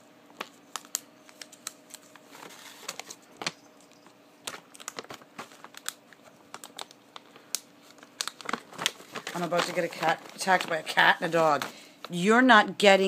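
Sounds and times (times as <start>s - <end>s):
faint steady hum: 0.0s - 13.0s
treat bag crinkling: 0.3s - 12.3s.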